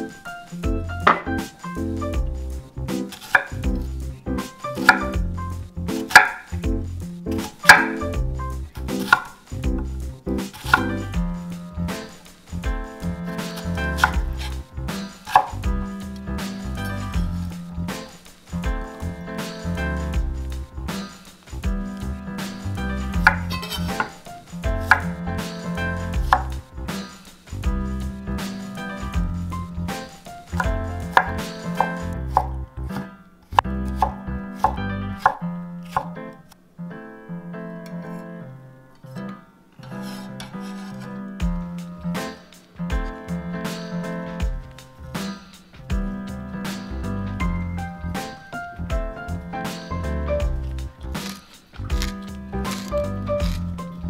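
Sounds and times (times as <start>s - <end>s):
background music: 0.0s - 54.0s
knife chopping onion on board: 3.0s - 3.9s, 4.7s - 6.5s, 7.3s - 9.8s, 10.4s - 11.2s, 13.4s - 15.8s, 22.5s - 26.6s, 30.0s - 33.0s, 33.6s - 36.2s, 50.5s - 53.7s.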